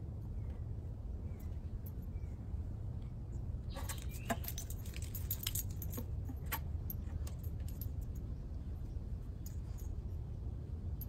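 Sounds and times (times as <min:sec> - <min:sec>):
small metal pieces jingling: 0:03.8 - 0:08.3.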